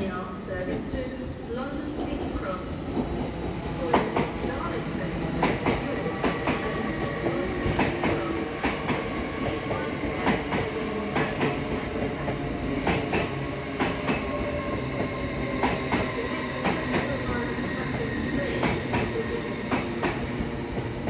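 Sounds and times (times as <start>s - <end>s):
train wheels clicking over rail joints: 12.3s - 14.3s.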